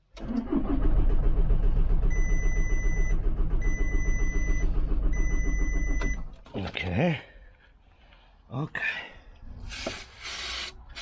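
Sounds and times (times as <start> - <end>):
engine cranking without starting: 0.0 - 6.4.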